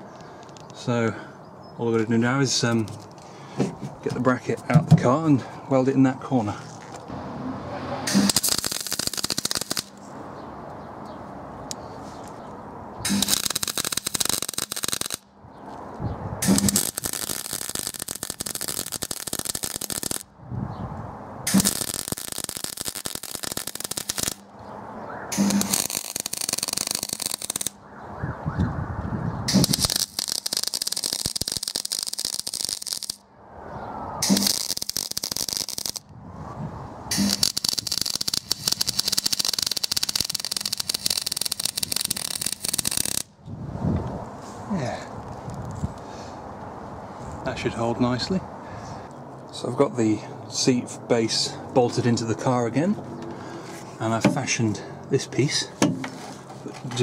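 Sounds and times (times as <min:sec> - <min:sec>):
welder arc crackling: 0:08.1 - 0:10.0, 0:13.0 - 0:15.3, 0:16.4 - 0:20.3, 0:21.5 - 0:24.5, 0:25.3 - 0:27.8, 0:29.5 - 0:33.2, 0:34.2 - 0:36.1, 0:37.1 - 0:43.3.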